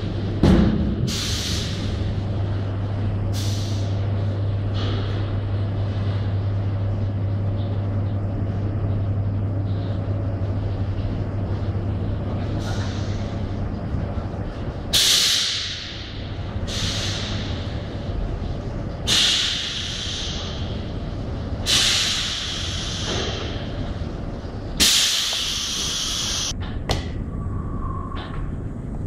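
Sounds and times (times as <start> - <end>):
machine low hum: 0.0 - 29.0
air venting hisses: 1.0 - 4.9, 10.6 - 26.6.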